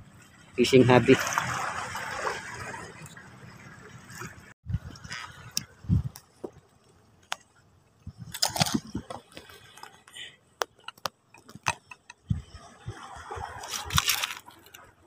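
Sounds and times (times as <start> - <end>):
crunching rustle: 13.3 - 14.8.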